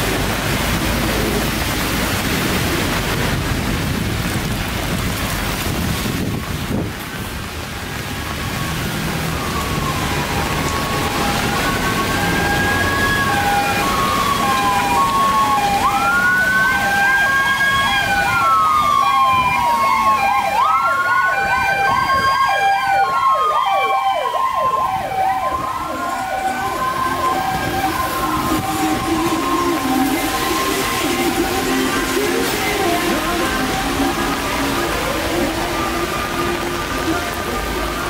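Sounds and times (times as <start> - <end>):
rain and traffic hiss: 0.0 - 38.0
siren slow wail: 8.4 - 38.0
two-tone hi-lo siren: 9.3 - 32.5
fast yelp siren: 9.4 - 31.7.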